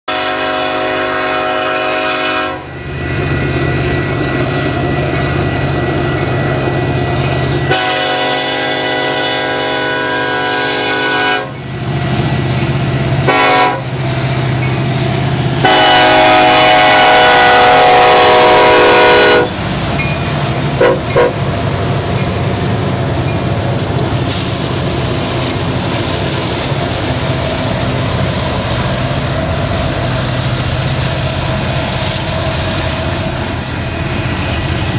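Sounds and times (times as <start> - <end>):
train air horn blasts: 0.1 - 2.7, 7.6 - 11.6, 13.2 - 14.0, 15.6 - 19.6, 20.8 - 21.4
diesel locomotive engines droning: 0.1 - 34.9.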